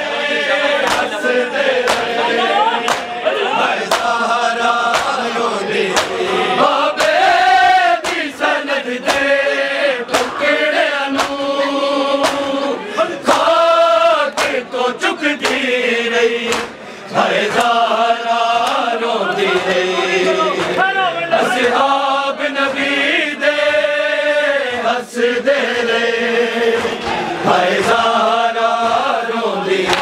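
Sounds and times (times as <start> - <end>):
men chanting in chorus: 0.0 - 30.0
hands slapping on chests: 0.8 - 1.2, 1.8 - 2.2, 2.8 - 3.2, 3.8 - 6.2, 6.9 - 7.4, 8.0 - 9.4, 10.1 - 10.4, 11.1 - 11.5, 12.2 - 12.6, 14.3 - 14.6, 15.4 - 15.7, 16.4 - 16.8, 17.5 - 17.8, 18.6 - 19.8.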